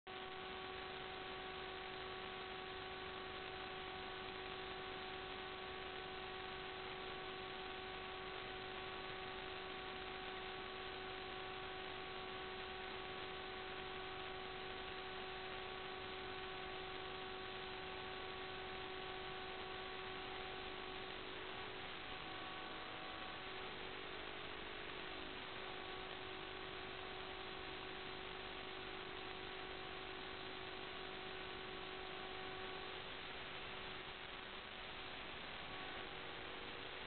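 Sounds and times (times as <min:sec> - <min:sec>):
constant humming tone: 0:00.1 - 0:37.0.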